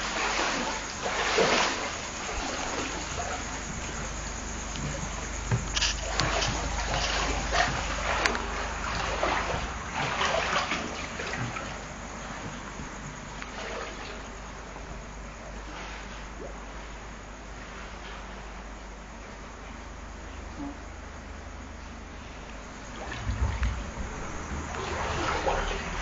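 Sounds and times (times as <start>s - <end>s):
person wading through water: 0.0s - 16.6s, 22.6s - 26.0s.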